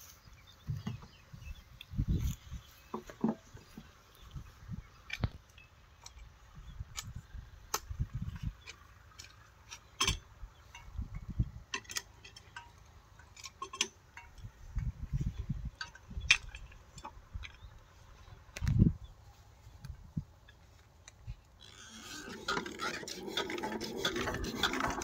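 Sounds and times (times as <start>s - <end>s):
low rumbles: 0.6s - 13.4s
metallic clicks and clinks: 11.7s - 14.5s.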